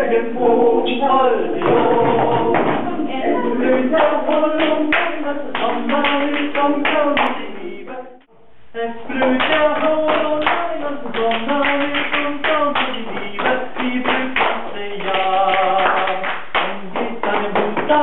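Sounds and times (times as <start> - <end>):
recorded music: 0.0 - 18.0
sharp handclaps: 11.2 - 17.9.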